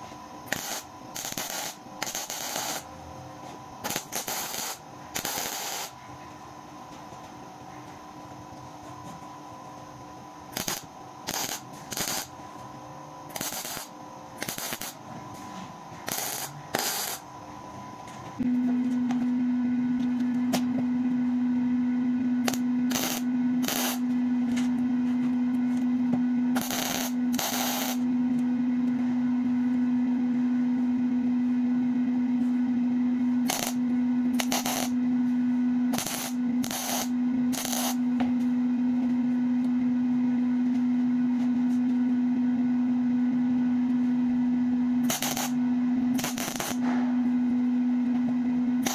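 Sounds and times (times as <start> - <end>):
welding arc bursts: 0.4 - 2.9, 3.8 - 6.0, 10.5 - 12.3, 13.3 - 15.0, 16.0 - 17.2, 22.4 - 24.0, 26.6 - 28.0, 33.4 - 33.8, 34.4 - 35.0, 35.9 - 38.0, 45.0 - 45.6, 46.2 - 46.8
loud low hum: 8.3 - 48.9.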